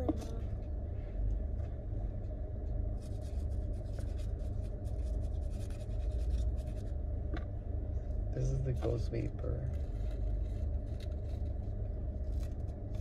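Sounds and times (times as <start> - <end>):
rolling paper crackling: 8.8 - 13.0.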